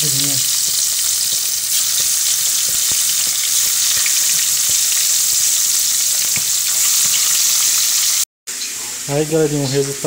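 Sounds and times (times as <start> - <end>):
fish deep-frying in oil: 0.0 - 10.0.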